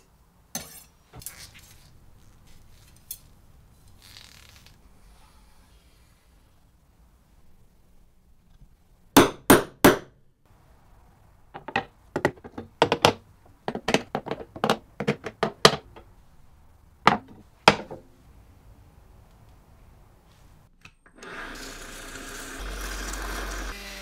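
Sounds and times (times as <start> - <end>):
hard objects knocking: 11.6 - 16.1, 17.1 - 18.1.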